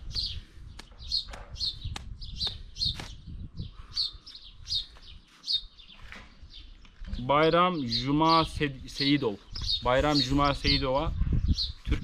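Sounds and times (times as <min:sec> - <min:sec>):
small birds chirping: 0:00.0 - 0:12.0.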